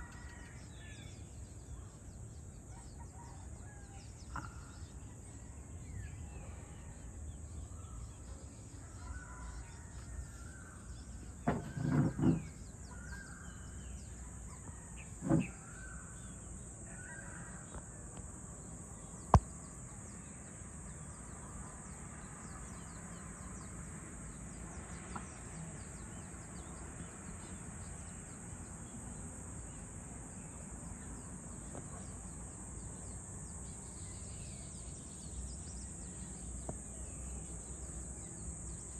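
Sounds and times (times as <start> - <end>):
faint bird calls: 2.7 - 18.0.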